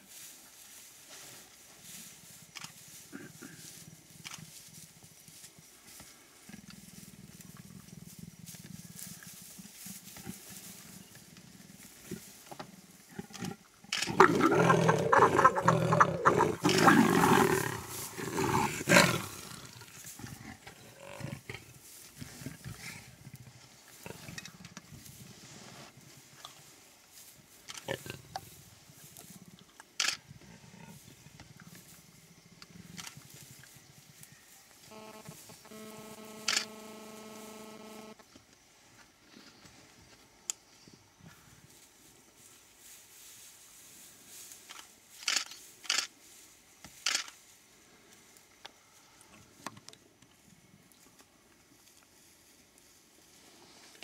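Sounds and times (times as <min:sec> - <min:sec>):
leopards growling: 0:13.0 - 0:26.4.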